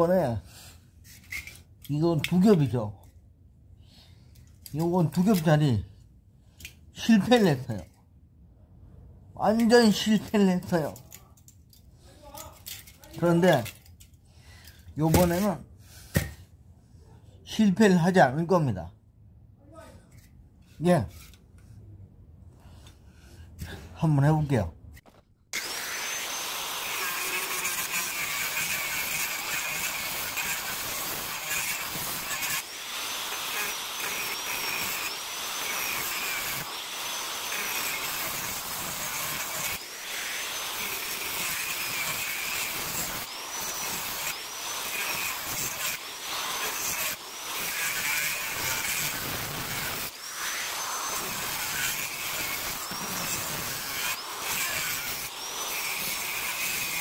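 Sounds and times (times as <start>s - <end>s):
angle grinder cutting metal: 25.5s - 57.0s.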